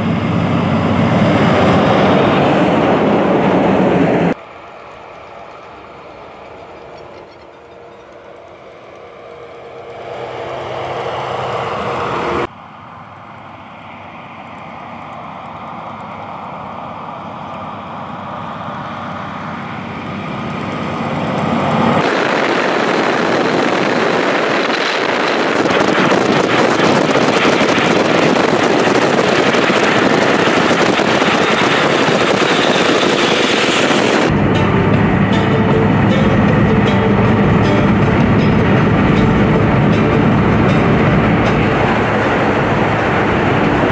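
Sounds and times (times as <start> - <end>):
truck diesel engine approaching: 0.0 - 43.9
trucks passing: 0.0 - 43.9
wind and road rush inside car: 11.9 - 43.9.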